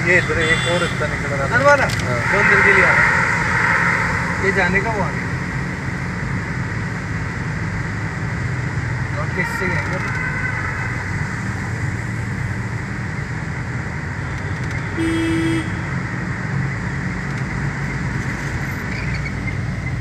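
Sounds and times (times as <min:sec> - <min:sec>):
car road and engine noise: 0:00.0 - 0:20.0
vehicle horn honk: 0:00.2 - 0:01.0, 0:02.2 - 0:04.0, 0:14.9 - 0:15.9.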